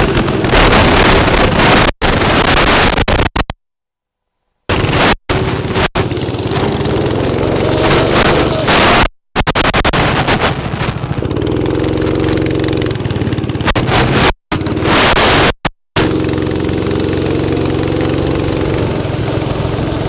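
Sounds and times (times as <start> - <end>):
loud rushing wind noise: 0.0 - 3.4, 4.7 - 11.7
go-kart engines passing: 4.8 - 8.8, 10.8 - 14.9, 16.0 - 20.0.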